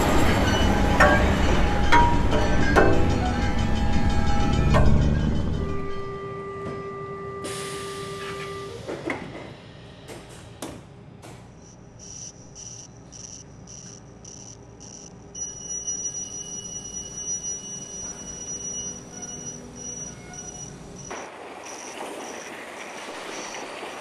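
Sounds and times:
steady high-pitched tone: 11.6 - 21.1
high door warning beeping: 11.6 - 22.5.

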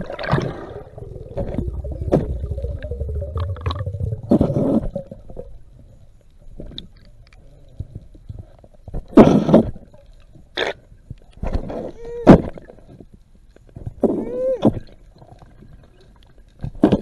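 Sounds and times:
underwater whooshing bursts: 0.0 - 5.3
muffled underwater rumble: 0.0 - 17.0
faint clicks: 5.7 - 9.0.

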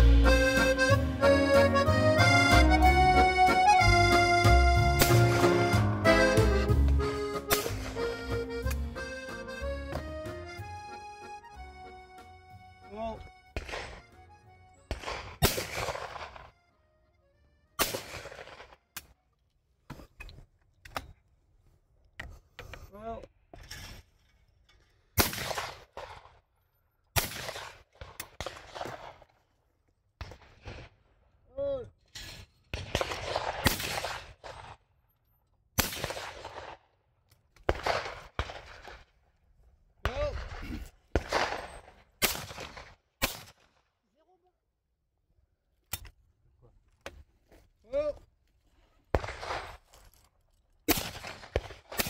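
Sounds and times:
sharp crack: 4.8 - 8.9, 13.6 - 14.2, 14.9 - 16.5, 17.8 - 19.1, 25.2 - 26.3, 27.2 - 29.2, 32.8 - 34.8, 35.8 - 36.8, 37.6 - 39.1, 40.1 - 43.8, 50.9 - 52.0
shotgun shots echoing: 5.0 - 5.9, 7.3 - 8.0, 13.6 - 14.2, 14.9 - 16.5, 17.8 - 18.8, 25.2 - 26.3, 27.2 - 29.2, 32.7 - 34.8, 35.8 - 36.8, 37.7 - 39.0, 40.0 - 43.7, 49.2 - 49.8, 50.9 - 52.0.

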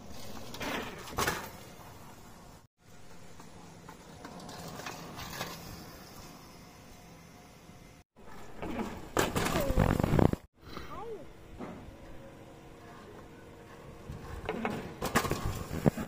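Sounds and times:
bicycle rolling on rough concrete: 0.0 - 7.2, 12.8 - 16.0.

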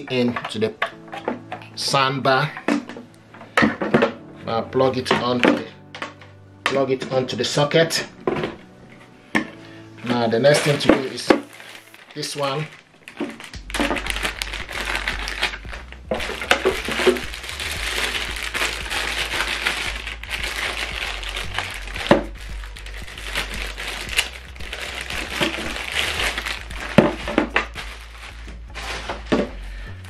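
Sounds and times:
plastic bags crinkling: 8.2 - 30.0.

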